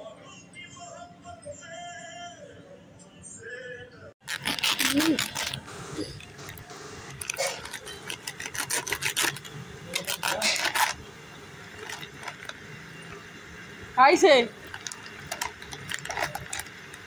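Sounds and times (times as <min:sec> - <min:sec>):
plastic bag crinkling: 0:04.2 - 0:11.0, 0:11.7 - 0:12.6, 0:14.5 - 0:17.0.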